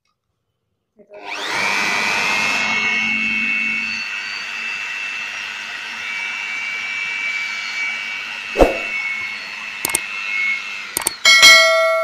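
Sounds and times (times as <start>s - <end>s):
electric blower whine: 1.1s - 11.5s
short clicks: 9.8s - 10.1s, 11.0s - 11.2s.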